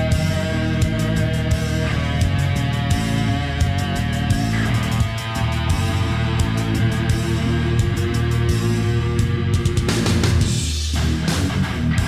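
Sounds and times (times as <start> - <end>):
guitar rock music with drums: 0.0 - 12.0.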